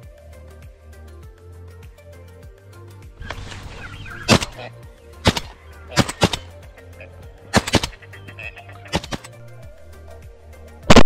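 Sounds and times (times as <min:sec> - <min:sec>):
background music: 0:00.0 - 0:11.0
shotgun shots: 0:03.2 - 0:06.8, 0:07.5 - 0:08.2, 0:08.9 - 0:09.4.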